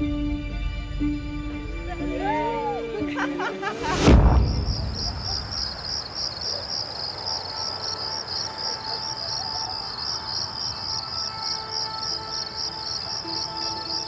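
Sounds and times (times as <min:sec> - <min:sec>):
deep boom: 0:03.8 - 0:06.1
crickets chirping: 0:03.8 - 0:14.0.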